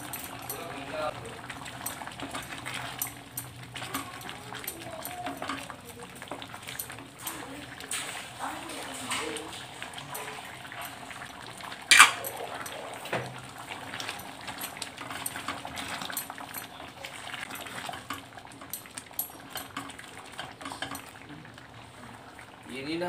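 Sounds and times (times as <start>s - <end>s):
spatula clanking against metal: 11.9s - 21.2s.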